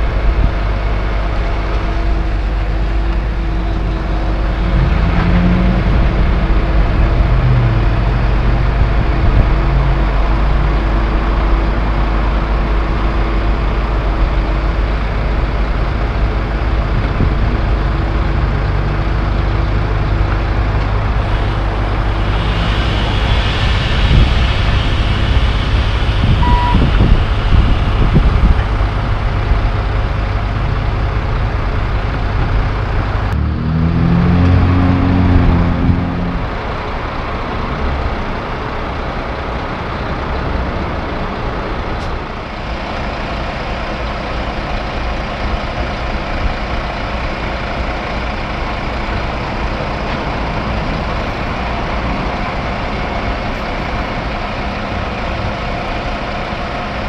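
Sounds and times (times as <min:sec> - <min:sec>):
diesel engine running: 0:00.0 - 0:57.0
hiss: 0:21.1 - 0:29.7
short beep: 0:26.4 - 0:27.1.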